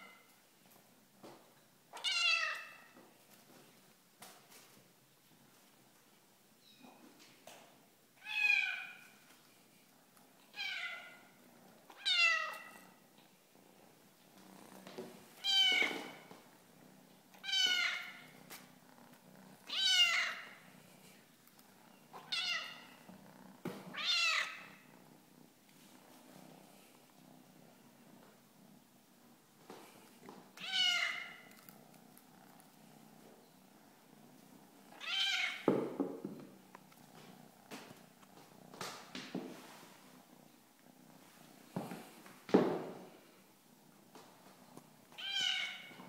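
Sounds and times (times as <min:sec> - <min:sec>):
kitten meowing: 0:19.7 - 0:20.5, 0:30.6 - 0:31.4, 0:35.0 - 0:35.7, 0:45.2 - 0:45.9.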